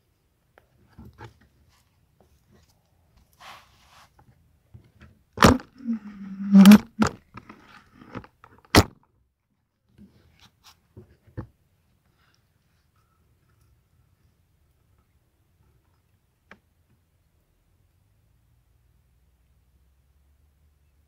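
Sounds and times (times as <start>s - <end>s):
short low creak: 5.7s - 7.2s.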